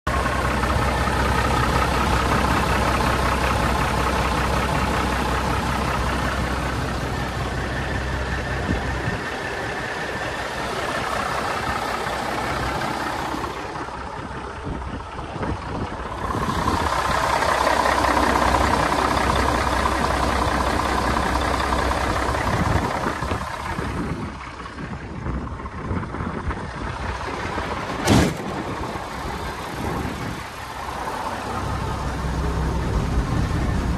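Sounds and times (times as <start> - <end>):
diesel truck engine idling: 0.1 - 33.9.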